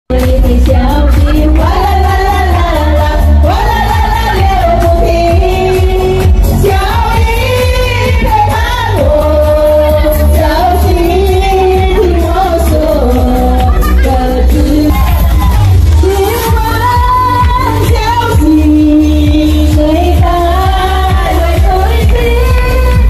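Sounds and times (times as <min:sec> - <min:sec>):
backing track with bass beat: 0:00.1 - 0:23.0
women singing into microphones: 0:00.1 - 0:23.0.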